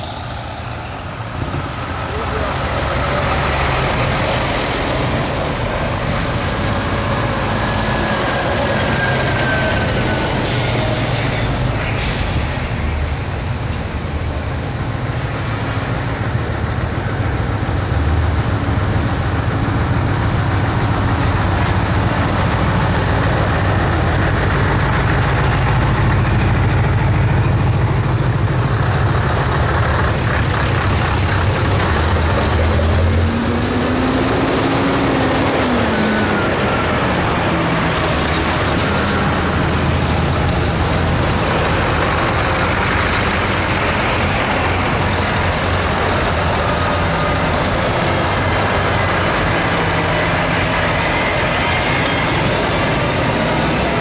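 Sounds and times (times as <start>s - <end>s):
truck diesel engines droning: 0.0s - 54.0s
air brake hiss: 11.9s - 12.7s.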